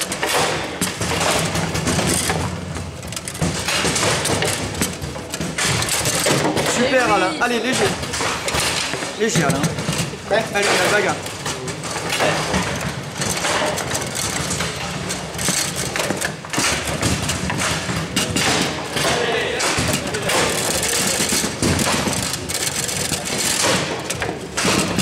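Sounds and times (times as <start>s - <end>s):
rods sliding and banging: 0.0s - 25.0s
table football ball clacking: 0.0s - 25.0s
murmur of voices: 5.4s - 13.3s, 18.3s - 25.0s.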